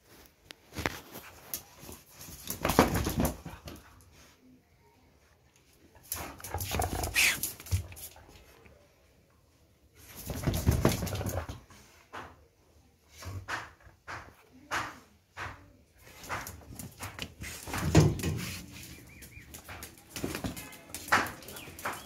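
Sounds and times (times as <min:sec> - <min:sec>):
dog scuffling with mat: 0:16.0 - 0:22.0.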